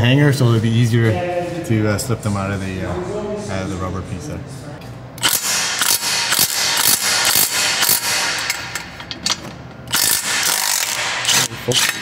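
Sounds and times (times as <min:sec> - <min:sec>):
ratchet wrench clicking: 0:05.2 - 0:12.0.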